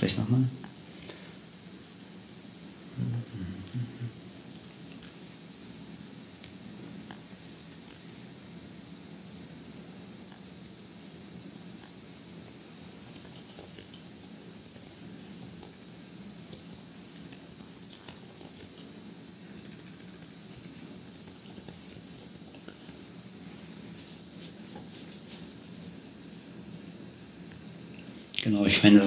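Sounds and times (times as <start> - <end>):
steady low hum: 0.0 - 29.0
typing on laptop keyboard: 13.1 - 15.8, 16.5 - 18.8, 19.4 - 23.0.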